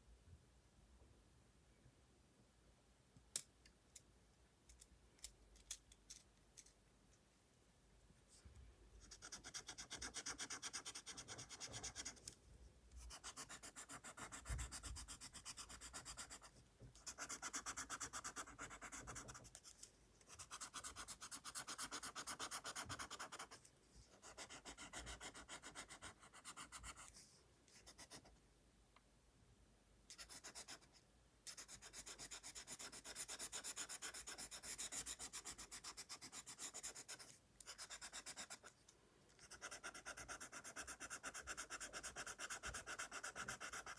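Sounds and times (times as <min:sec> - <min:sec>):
pencil scratching on paper: 0:09.0 - 0:12.2, 0:13.0 - 0:19.7, 0:20.3 - 0:27.2, 0:30.1 - 0:38.7, 0:39.4 - 0:43.9.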